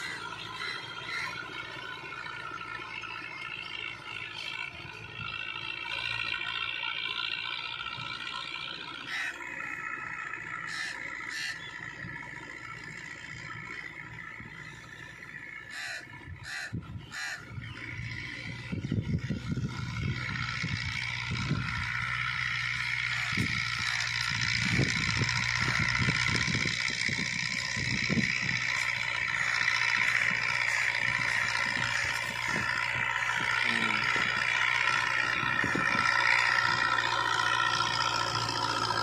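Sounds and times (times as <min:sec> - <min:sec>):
crows cawing: 0:00.0 - 0:02.0, 0:09.0 - 0:09.8, 0:10.4 - 0:11.8, 0:15.5 - 0:17.9
tractor diesel engine running: 0:00.0 - 0:39.0.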